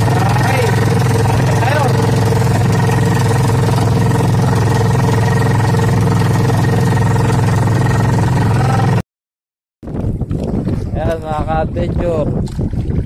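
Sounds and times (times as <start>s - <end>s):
boat engine droning: 0.0s - 9.0s.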